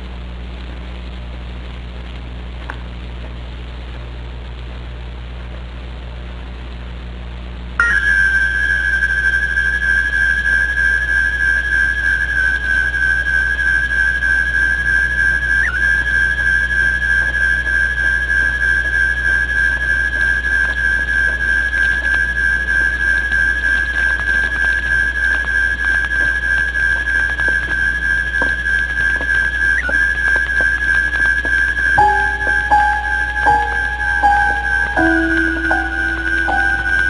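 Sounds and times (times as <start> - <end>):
low hum with hiss: 0.0 - 37.0
high-pitched whistling tone: 7.8 - 37.0.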